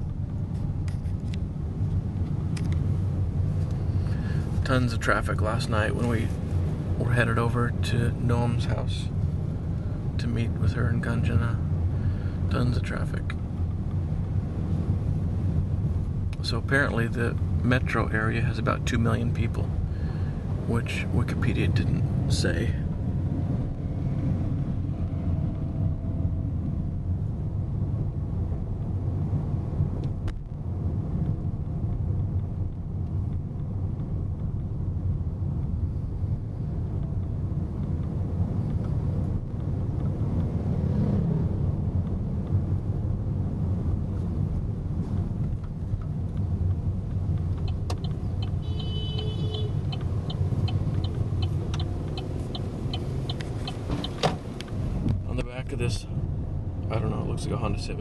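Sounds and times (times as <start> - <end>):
car engine and road rumble: 0.0 - 58.0
turn indicator ticking: 45.4 - 55.2.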